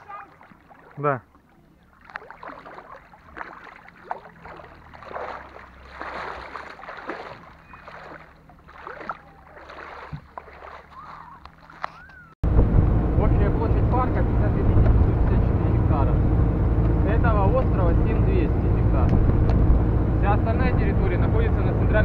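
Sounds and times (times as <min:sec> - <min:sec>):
shallow water splashing: 0:00.0 - 0:12.4.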